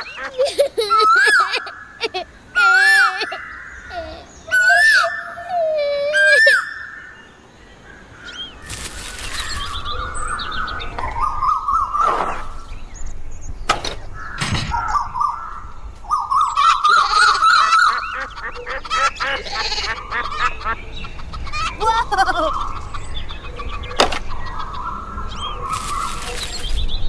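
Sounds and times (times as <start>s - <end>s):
small birds chirping: 0.0s - 27.0s
sharp knocks: 13.7s - 14.9s
geese honking: 16.3s - 23.1s.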